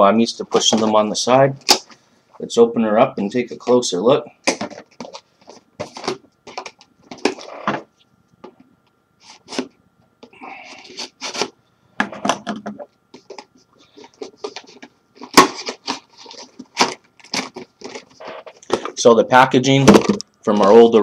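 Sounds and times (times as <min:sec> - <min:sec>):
cardboard and plastic packaging crackling: 0:04.5 - 0:07.9, 0:10.6 - 0:19.1.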